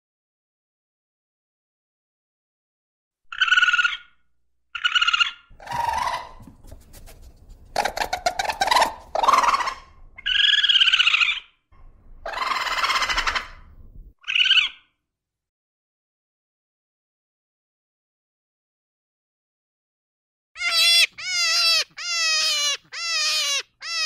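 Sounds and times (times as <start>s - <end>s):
raccoon chirping and screeching: 3.3s - 11.6s, 12.2s - 14.9s, 20.6s - 24.0s.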